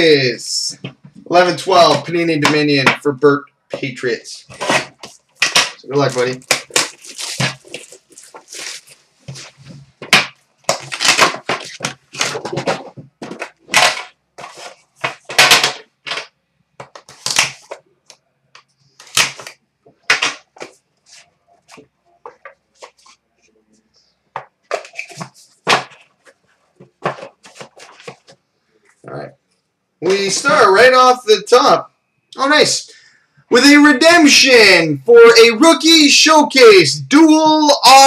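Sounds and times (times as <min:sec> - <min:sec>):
packaging rustling and crinkling: 0:04.5 - 0:15.4, 0:24.7 - 0:28.4.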